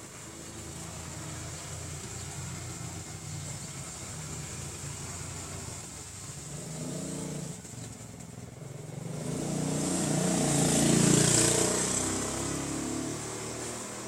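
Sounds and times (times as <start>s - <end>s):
vehicle driving past: 8.6s - 14.0s.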